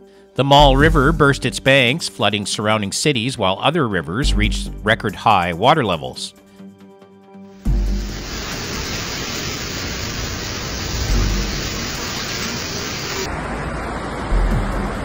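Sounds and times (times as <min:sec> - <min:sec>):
floodwater rushing: 0:07.6 - 0:15.0.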